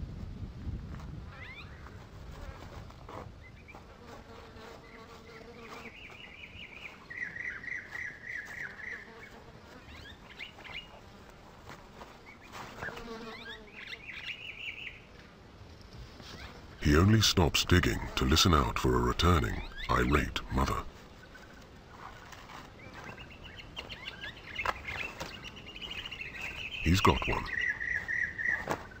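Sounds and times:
birds chirping and calling: 4.9s - 11.1s, 12.0s - 15.1s, 16.3s - 29.0s
claws scratching loose soil: 20.6s - 23.2s.

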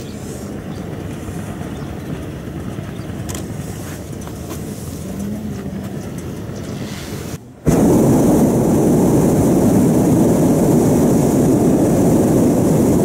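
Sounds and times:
propane burner roaring: 0.0s - 13.0s
steady low rumbling: 4.9s - 13.0s.

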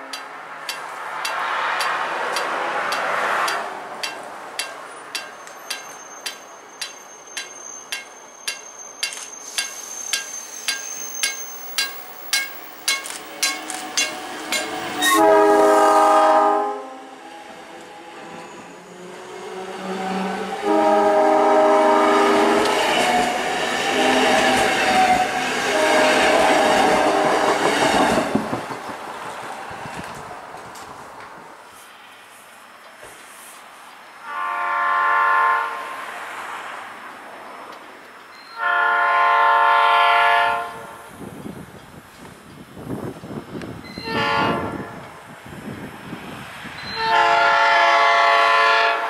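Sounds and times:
rumble of passing train cars: 0.0s - 49.0s
train wheels clicking: 0.1s - 15.3s, 26.2s - 31.3s
train horn: 15.0s - 17.2s, 19.6s - 27.5s, 34.2s - 36.0s, 38.5s - 41.1s, 44.0s - 45.1s, 46.9s - 49.0s.

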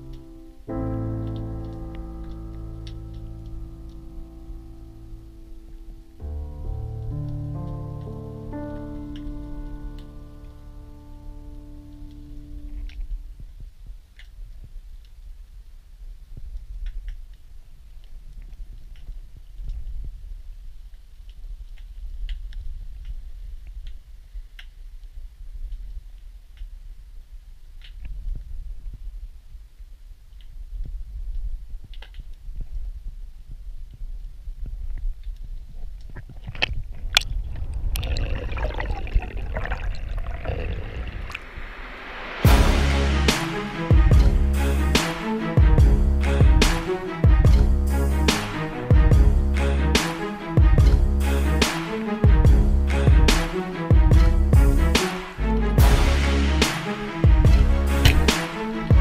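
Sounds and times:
music: 0.0s - 13.4s, 41.9s - 59.0s
low rumble of moving water: 0.8s - 42.7s
underwater rumble of moving water: 36.1s - 42.0s.

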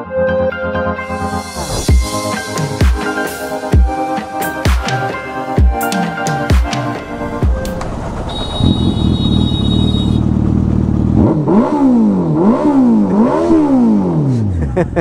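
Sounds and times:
motorbike engine idling and revving: 7.0s - 15.0s.

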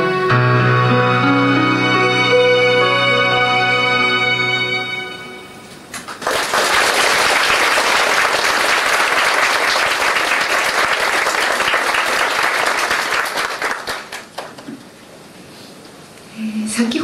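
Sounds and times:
audience applauding: 5.9s - 14.8s.

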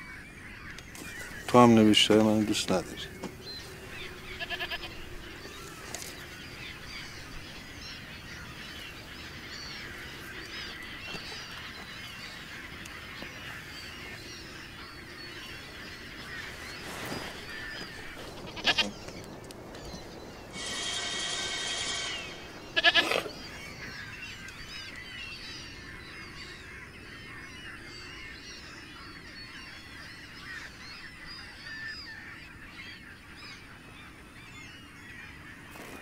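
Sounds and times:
goat bleating: 4.4s - 4.9s, 18.5s - 18.9s, 20.6s - 23.3s.

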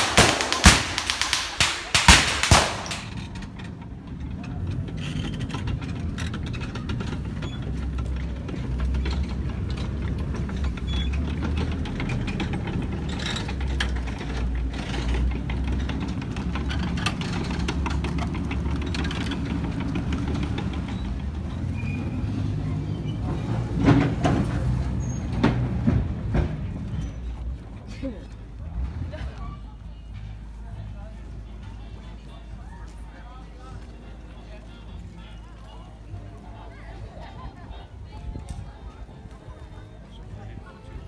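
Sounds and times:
tank engine droning: 2.5s - 27.4s.

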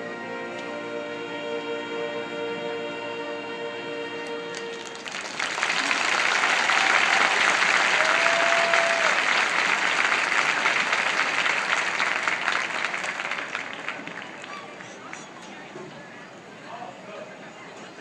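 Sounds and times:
marching band playing: 0.0s - 5.6s
crowd applauding: 4.5s - 15.3s.

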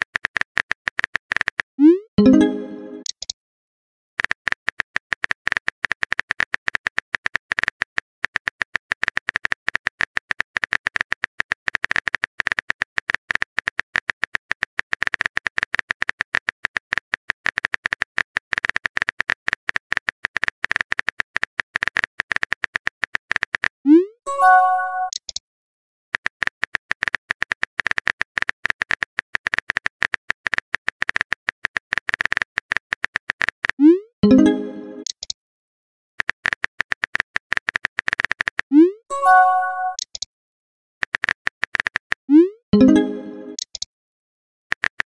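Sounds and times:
simulated keyboard tapping clicks: 0.0s - 3.4s, 4.2s - 25.4s, 26.2s - 35.4s, 36.2s - 40.3s, 41.0s - 43.9s, 44.7s - 45.0s
message sent tone: 1.8s - 3.1s, 24.3s - 25.2s, 33.8s - 35.1s, 38.7s - 40.0s, 42.3s - 43.6s.

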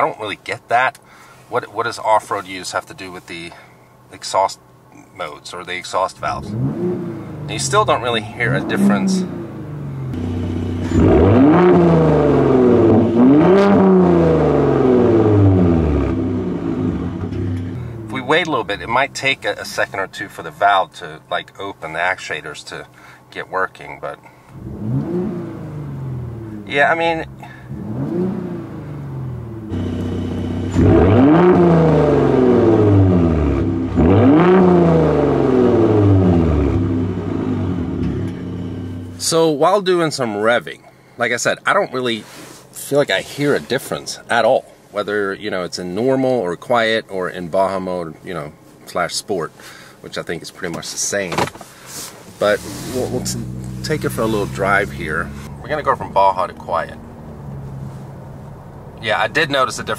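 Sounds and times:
car engine revving: 6.2s - 20.0s, 24.5s - 39.4s, 51.8s - 59.9s.

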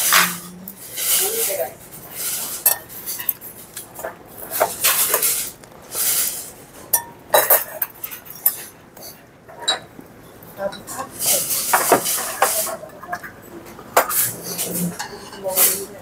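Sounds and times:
chopsticks clicking on dishes: 6.9s - 9.8s.

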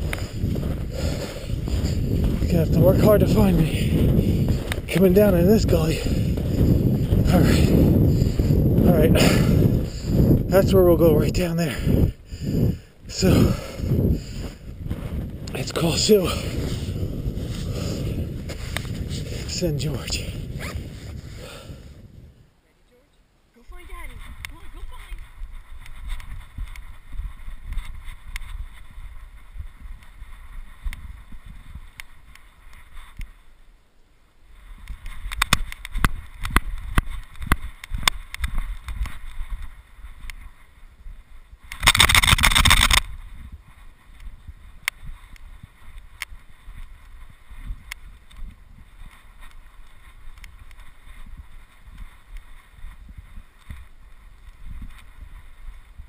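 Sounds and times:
wind rumbling on microphone: 0.0s - 22.7s, 23.5s - 56.0s
crunching and rustling clicks: 34.8s - 40.5s, 41.6s - 56.0s.

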